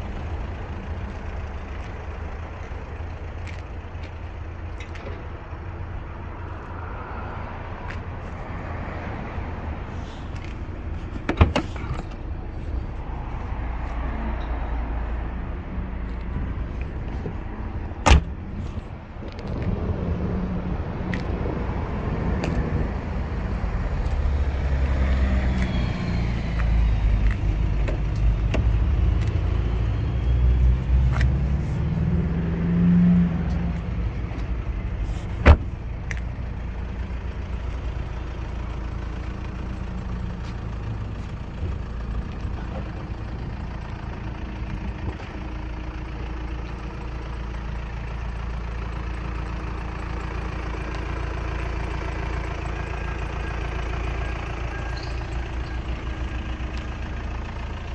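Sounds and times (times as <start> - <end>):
car engine idling: 0.0 - 19.7, 33.3 - 57.9.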